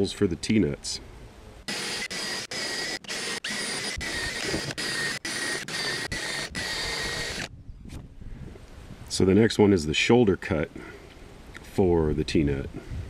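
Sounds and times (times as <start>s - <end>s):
electric drill whining: 1.7s - 7.5s.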